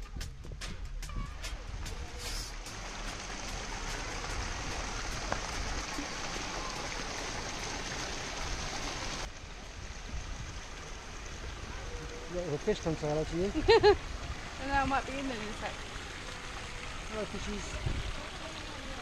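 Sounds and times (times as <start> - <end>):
fountain water splashing into pond: 2.4 - 19.0.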